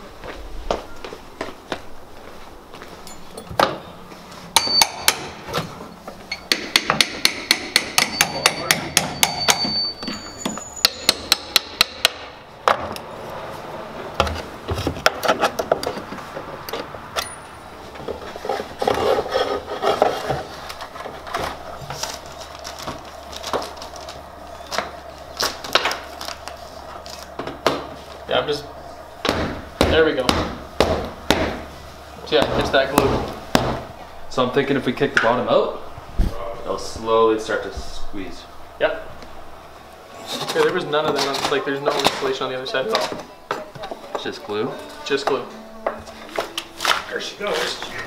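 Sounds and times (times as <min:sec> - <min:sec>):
hammer striking pry bar: 0:04.6 - 0:05.4, 0:06.4 - 0:12.3.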